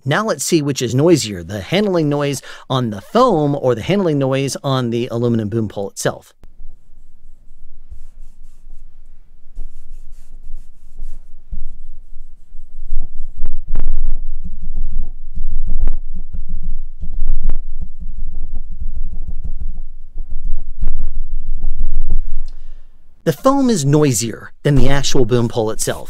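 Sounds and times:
fingers rubbing a boom pole: 6.7s - 22.4s.

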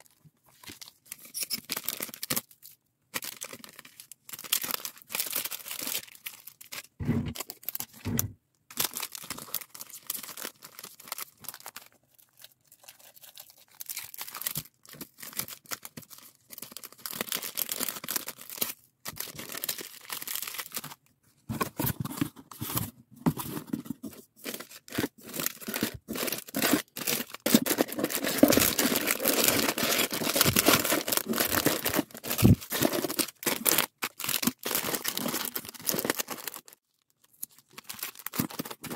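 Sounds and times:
plastic bags crinkling: 8.7s - 21.0s, 23.6s - 38.9s.

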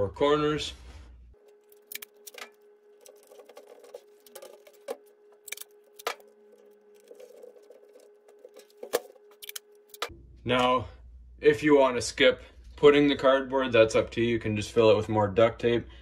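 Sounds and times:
faint steady hum: 0.0s - 16.0s
plastic clicks and crinkles: 1.4s - 10.1s.

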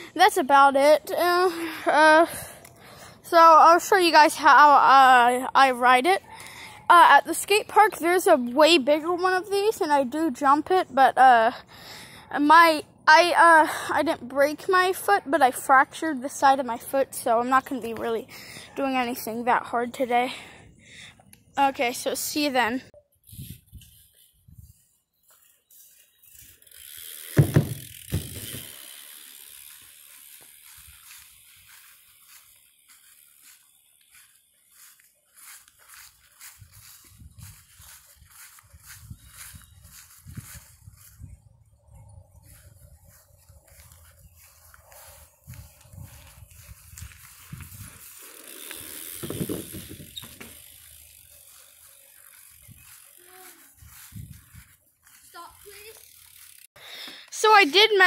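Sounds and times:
bike tyres rolling on asphalt: 23.8s - 56.7s
bicycle freewheel ticking: 25.8s - 40.1s, 43.7s - 56.7s
wheels thumping on plywood ramp: 27.2s - 28.7s.

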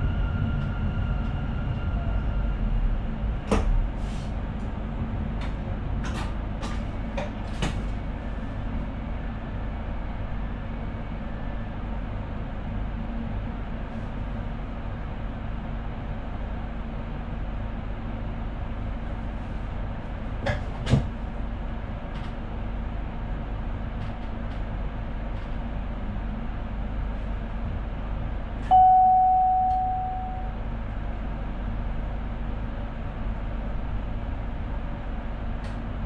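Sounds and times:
train cab running noise: 0.0s - 9.0s
single chime: 28.7s - 30.6s.

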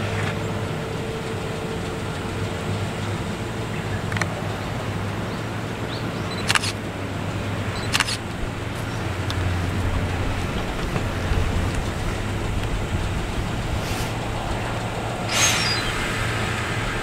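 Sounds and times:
electric train humming: 0.0s - 17.0s
sharp clicks: 4.1s - 4.4s, 6.3s - 6.8s, 7.8s - 8.3s, 15.3s - 16.5s.

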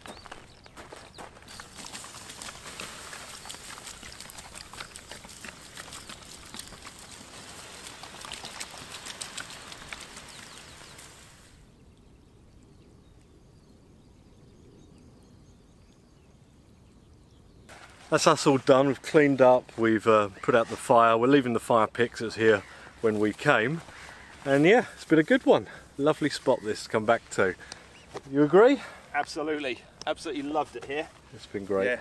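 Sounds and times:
faint outdoor background: 0.0s - 32.0s
water hissing on embers: 1.5s - 11.7s.

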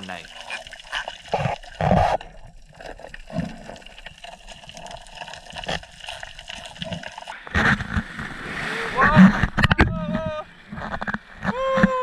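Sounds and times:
underwater sloshing and gurgling: 0.0s - 11.6s.

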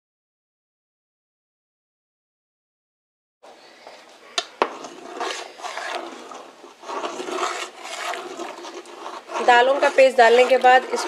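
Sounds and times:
boiling water: 3.7s - 11.0s
metal ladle scraping metal pot: 4.6s - 11.0s.

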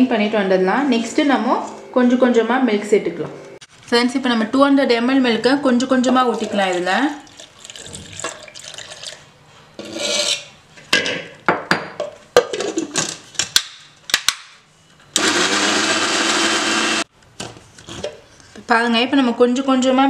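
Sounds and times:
milk pouring into steel jar: 6.3s - 9.2s
electric mixer grinder running: 15.2s - 17.1s.

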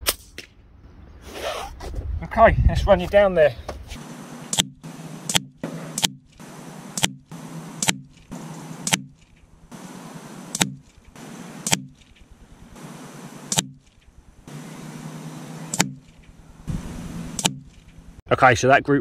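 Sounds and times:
pellets striking a target: 4.0s - 12.1s, 12.8s - 13.8s, 14.6s - 16.1s.

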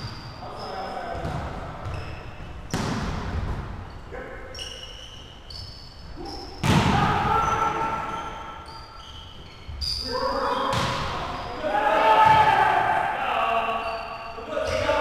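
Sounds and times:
sneakers squeaking on floor: 0.0s - 12.6s, 13.7s - 15.0s
volleyball slaps: 2.7s - 3.7s, 6.6s - 7.3s, 10.7s - 11.3s.

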